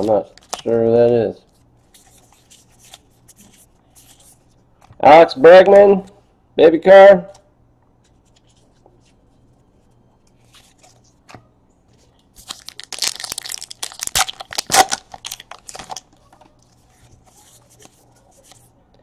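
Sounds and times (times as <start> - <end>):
foil wrapper tearing and crinkling: 12.4 - 16.0.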